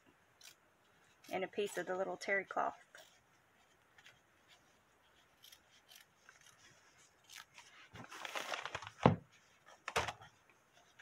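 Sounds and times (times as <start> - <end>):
scissors snipping fabric: 1.2 - 2.1, 5.4 - 6.6
fabric rustling: 2.8 - 11.0.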